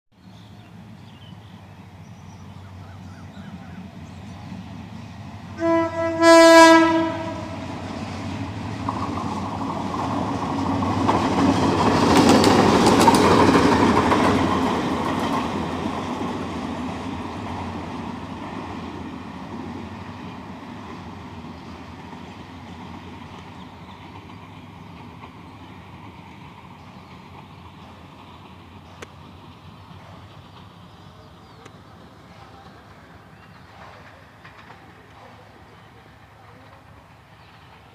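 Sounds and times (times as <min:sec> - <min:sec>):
diesel locomotive engine: 0:00.2 - 0:37.9
locomotive horn: 0:05.5 - 0:07.8
wheels clicking over rail joints: 0:07.9 - 0:19.9, 0:20.8 - 0:37.9.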